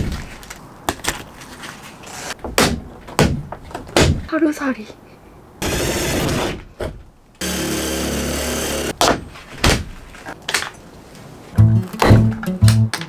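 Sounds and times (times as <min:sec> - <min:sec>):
cordless drill running: 0:07.4 - 0:08.9
music with a steady beat: 0:11.6 - 0:13.0.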